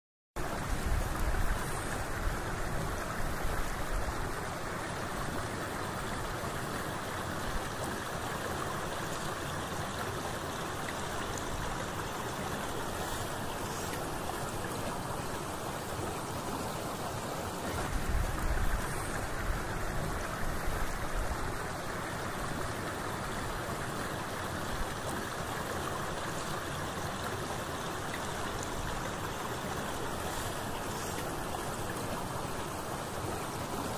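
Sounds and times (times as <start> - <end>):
flowing water rushing: 0.4 - 33.9.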